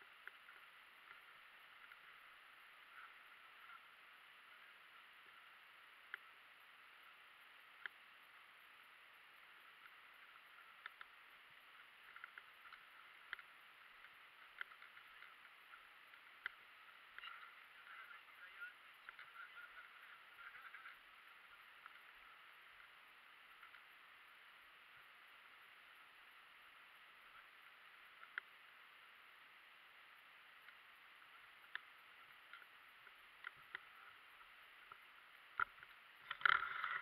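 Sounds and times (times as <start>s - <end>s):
small clicks: 9.4s - 21.0s, 31.4s - 37.0s
faint chirps: 9.4s - 29.1s.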